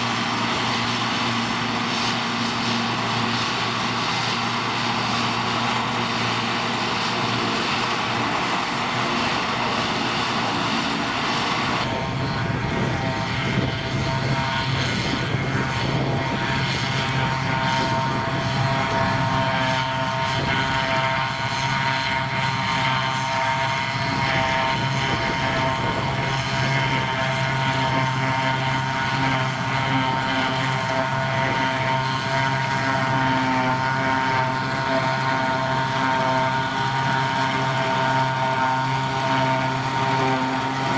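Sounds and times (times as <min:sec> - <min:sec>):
tractor engine with high whine: 0:00.0 - 0:40.9
forage harvester chopping grass: 0:23.9 - 0:40.9.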